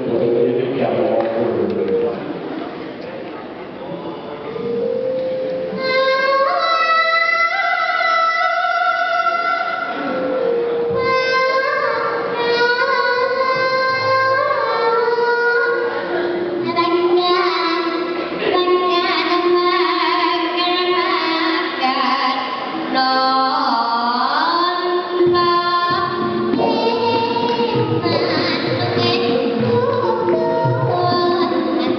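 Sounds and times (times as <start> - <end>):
gamelan instruments: 4.6 - 6.6, 9.6 - 12.9
girl singing: 5.7 - 31.9.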